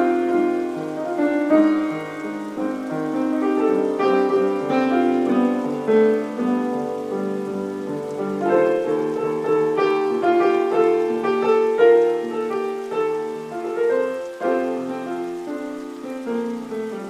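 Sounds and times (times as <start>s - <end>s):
solo piano: 0.0s - 17.0s.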